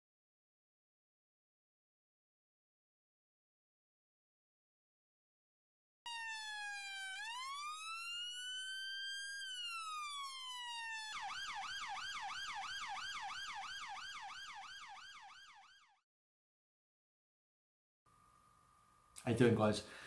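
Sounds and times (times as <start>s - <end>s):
electronic police siren wailing: 6.1s - 16.0s
police siren fast yelp: 6.1s - 16.0s.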